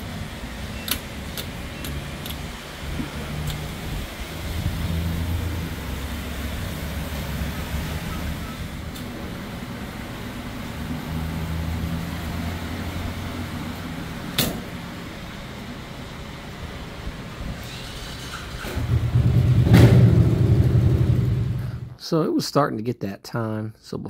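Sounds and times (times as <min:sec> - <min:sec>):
fuel pump humming: 0:00.0 - 0:22.0
sharp click: 0:14.4 - 0:14.6.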